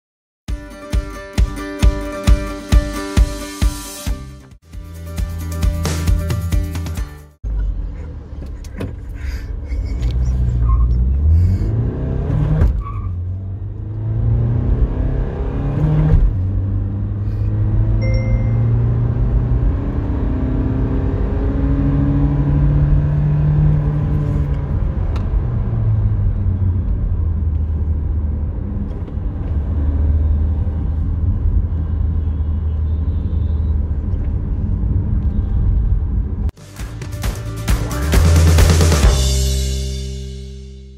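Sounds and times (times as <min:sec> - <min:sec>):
diesel engine accelerating: 0:07.4 - 0:35.3.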